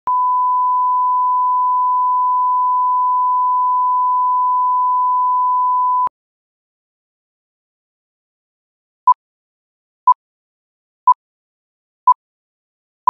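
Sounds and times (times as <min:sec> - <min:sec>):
steady test tone beep: 0:00.1 - 0:06.1.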